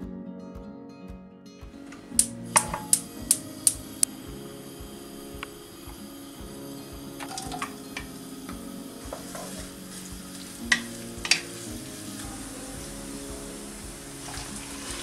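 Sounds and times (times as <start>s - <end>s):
spatula clicks: 2.2s - 3.8s
onions frying in hot oil: 5.1s - 8.4s, 9.0s - 15.0s.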